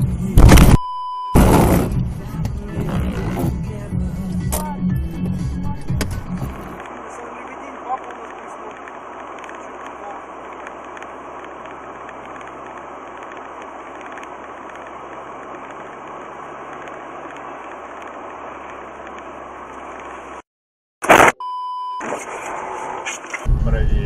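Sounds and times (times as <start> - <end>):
car road and engine rumble: 0.0 - 20.4, 22.0 - 24.0
brief beep-like tone: 0.6 - 1.5, 21.2 - 22.2
loud crash bang: 1.4 - 2.1.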